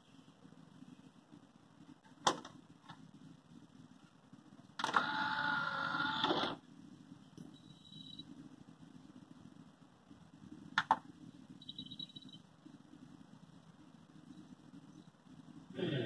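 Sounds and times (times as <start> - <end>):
disc tray motor whirr: 4.8 - 6.6.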